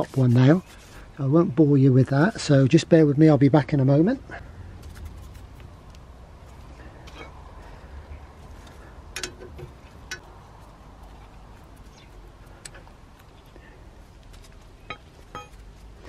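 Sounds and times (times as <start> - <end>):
low steady background rumble: 0.0 - 16.0
metallic clinks: 9.1 - 10.3, 14.9 - 15.7.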